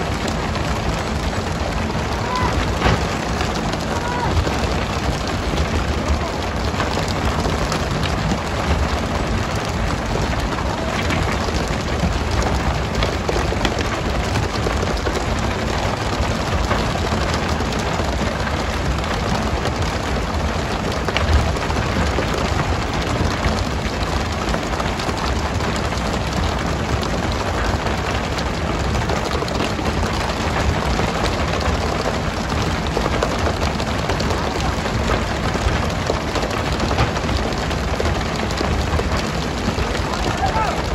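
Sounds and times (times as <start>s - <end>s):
small knocks: 2.1s - 4.8s.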